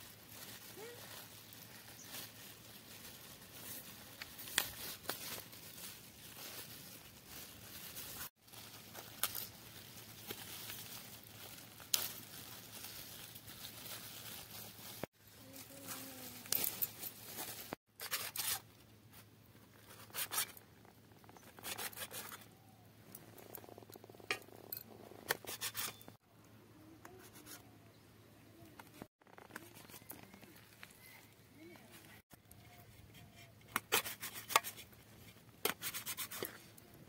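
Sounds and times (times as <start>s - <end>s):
plastic bag crinkling and tearing: 0.0s - 15.1s.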